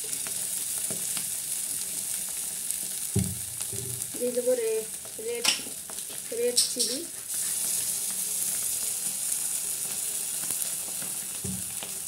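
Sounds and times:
hot oil sizzling and crackling: 0:00.0 - 0:12.0
low thump: 0:03.2 - 0:04.0.

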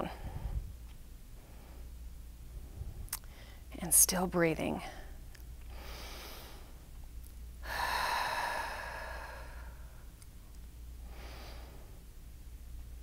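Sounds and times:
woman breathing slowly: 0:00.1 - 0:00.7, 0:01.4 - 0:02.0, 0:02.6 - 0:03.7, 0:04.8 - 0:06.9, 0:07.6 - 0:10.2, 0:11.0 - 0:12.1.

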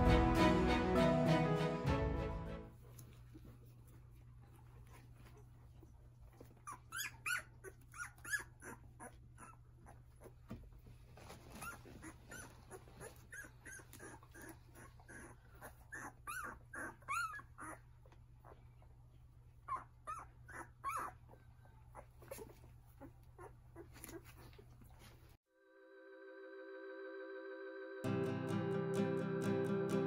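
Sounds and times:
puppies squeaking and whimpering: 0:06.5 - 0:10.4, 0:11.3 - 0:18.7, 0:19.6 - 0:24.8.

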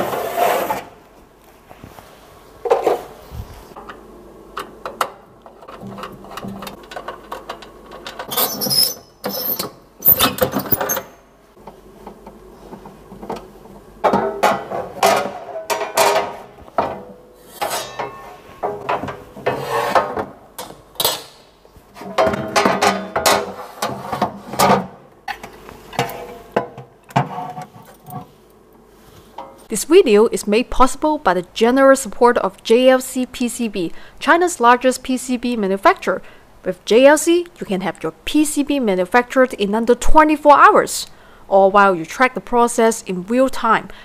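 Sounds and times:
parts clicking and clattering: 0:03.8 - 0:21.4.

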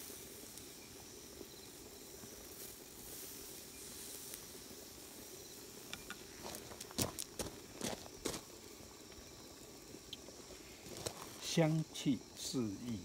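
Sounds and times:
meat sizzling over flame: 0:00.0 - 0:13.0.

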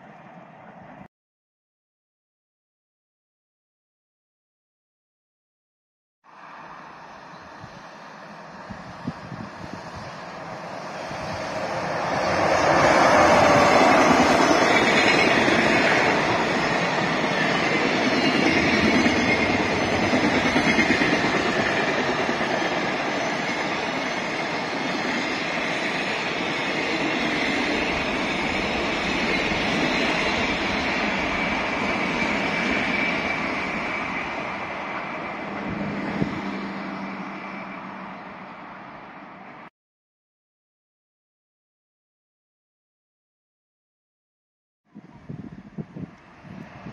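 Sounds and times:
freight train passing: 0:00.0 - 0:01.1, 0:06.3 - 0:39.7, 0:45.3 - 0:46.9.

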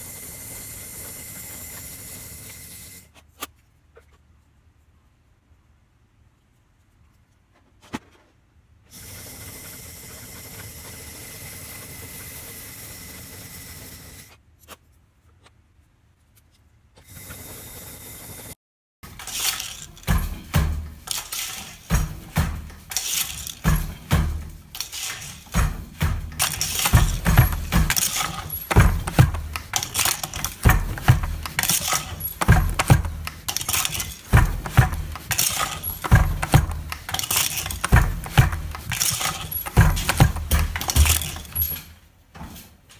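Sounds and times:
wooden loom knocking and clattering: 0:19.0 - 0:42.0.

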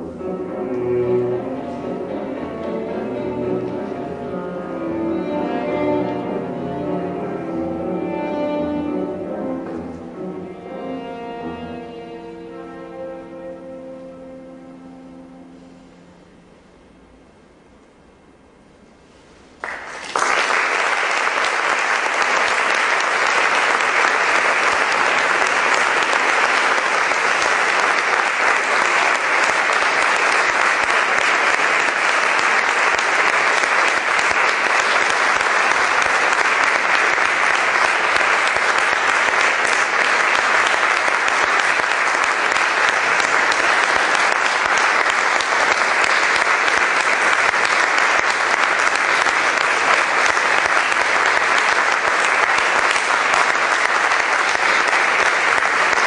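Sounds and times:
audience applauding in hall: 0:01.2 - 0:04.0, 0:19.1 - 0:56.0.

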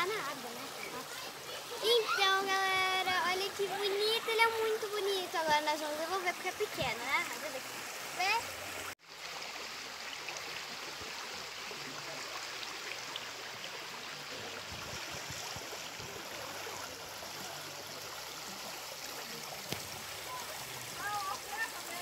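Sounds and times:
stream flowing over stones: 0:00.0 - 0:22.0.

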